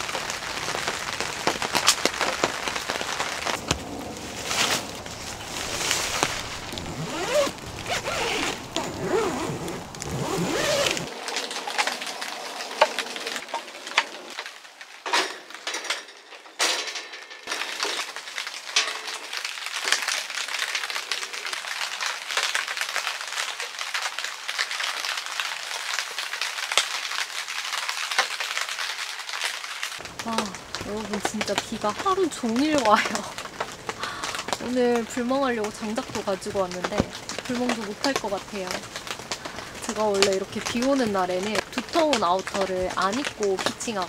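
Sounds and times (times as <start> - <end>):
rain pattering on tent fabric: 0.0 - 15.7, 17.5 - 44.0
zipper: 3.7 - 11.1.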